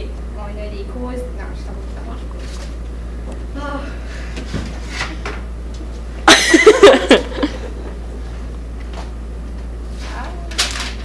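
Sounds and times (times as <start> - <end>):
low room hum: 0.0 - 11.0
woman laughing: 6.2 - 8.0.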